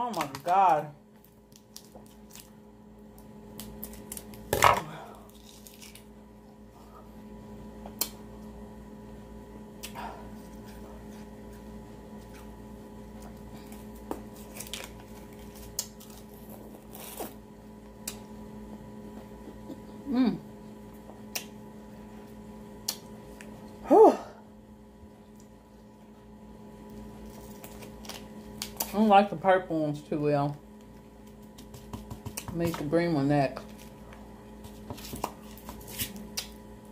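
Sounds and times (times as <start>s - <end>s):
steady hum: 0.0s - 36.9s.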